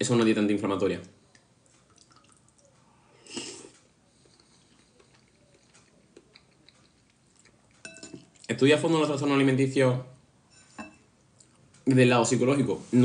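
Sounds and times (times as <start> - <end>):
slurp of soup: 3.2 - 7.1.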